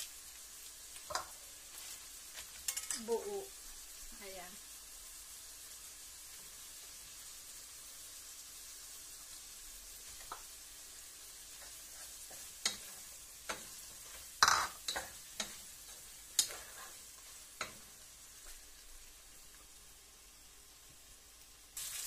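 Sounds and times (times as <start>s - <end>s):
faint frying sizzle: 0.0s - 22.0s
wooden spatula scraping frying pan: 11.5s - 18.6s.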